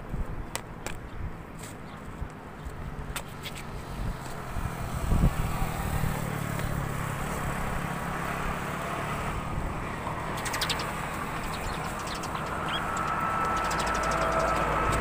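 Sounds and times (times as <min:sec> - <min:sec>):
road traffic passing: 0:00.0 - 0:15.0
motorcycle engine drone: 0:03.8 - 0:15.0.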